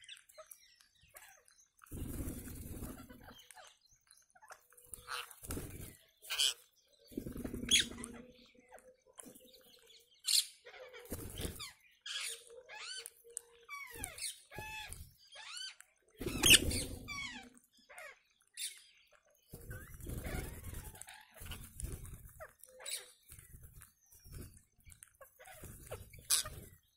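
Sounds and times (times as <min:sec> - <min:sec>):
parakeet flock calling: 0:04.4 - 0:08.6, 0:10.2 - 0:23.5, 0:24.9 - 0:26.8.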